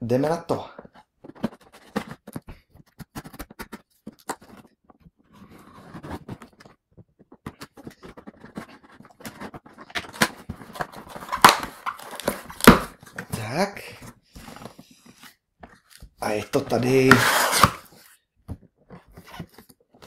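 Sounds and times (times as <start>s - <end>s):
hands handling box: 0.7s - 20.0s
knife scraping cardboard: 16.8s - 18.2s.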